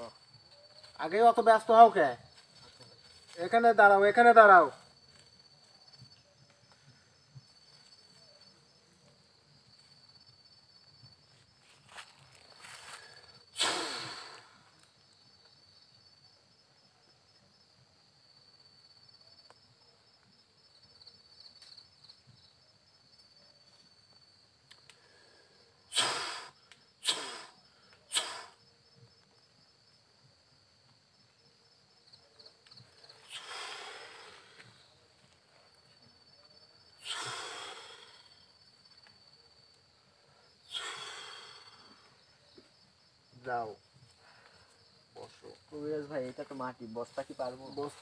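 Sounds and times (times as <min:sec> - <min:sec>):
crickets chirping: 0:00.0 - 0:48.0
person blowing puffs of breath: 0:12.8 - 0:14.6, 0:25.0 - 0:28.6, 0:33.2 - 0:34.8, 0:37.0 - 0:38.4, 0:40.6 - 0:42.0.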